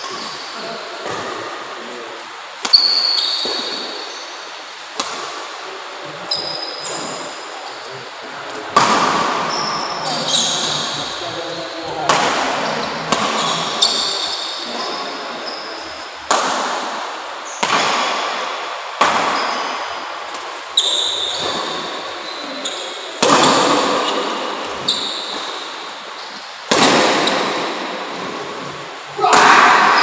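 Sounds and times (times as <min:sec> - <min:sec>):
shoes squeaking on court: 0:02.7 - 0:04.3, 0:06.2 - 0:08.0, 0:09.4 - 0:11.8, 0:12.6 - 0:16.2, 0:20.8 - 0:26.6
rackets striking shuttlecock: 0:12.1 - 0:14.8.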